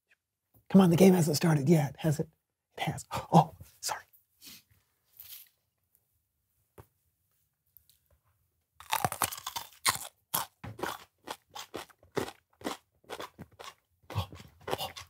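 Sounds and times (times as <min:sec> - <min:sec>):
crunching of pepper being chewed: 0:08.8 - 0:15.0.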